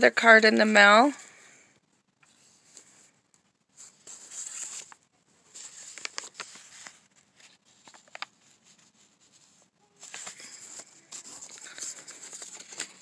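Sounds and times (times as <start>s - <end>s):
paper envelope rustling: 3.7s - 13.0s.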